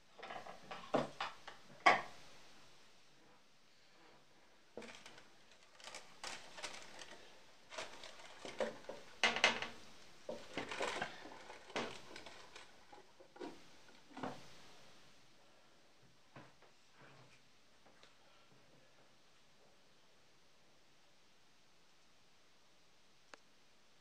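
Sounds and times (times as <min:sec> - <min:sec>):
parchment paper rustling: 0:04.8 - 0:14.2.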